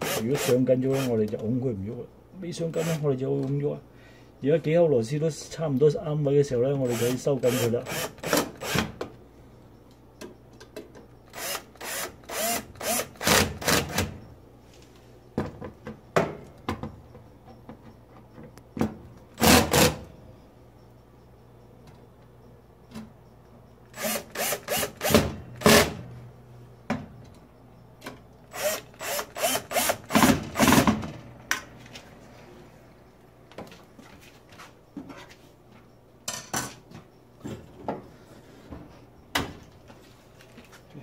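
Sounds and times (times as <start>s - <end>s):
screwdriver bursts: 0.0s - 1.1s, 6.8s - 8.9s, 11.3s - 14.1s, 19.4s - 20.0s, 23.9s - 26.0s, 28.5s - 30.9s.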